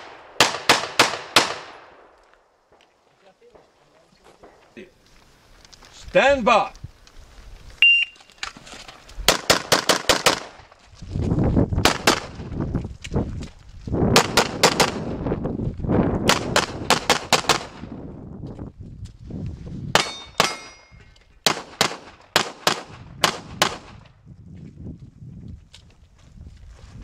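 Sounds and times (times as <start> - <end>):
steel target clang: 20.0 - 21.0
handgun shots: 20.0 - 23.8.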